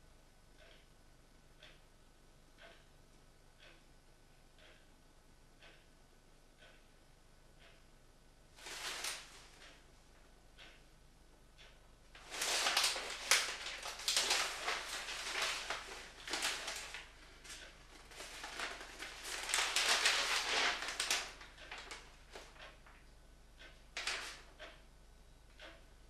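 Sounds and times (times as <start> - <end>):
newspaper pages rustling: 8.6 - 9.4, 12.2 - 22.5
small paper crackles: 8.6 - 9.6, 12.2 - 22.6, 24.0 - 24.4.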